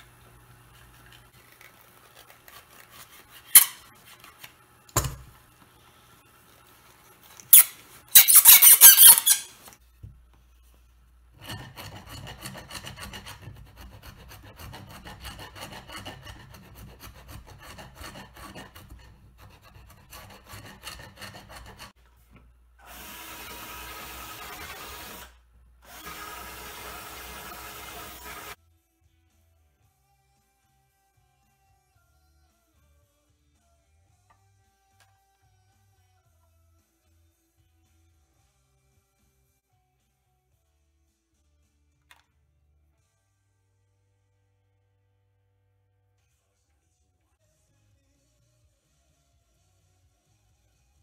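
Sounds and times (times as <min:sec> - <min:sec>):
chisel scraping wood: 0:00.6 - 0:04.6, 0:07.4 - 0:09.8, 0:11.3 - 0:22.0.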